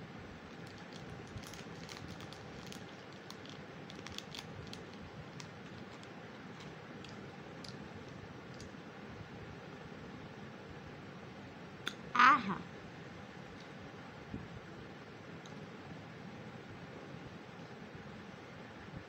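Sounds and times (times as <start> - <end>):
foil wrapper crinkling: 0.4 - 8.8.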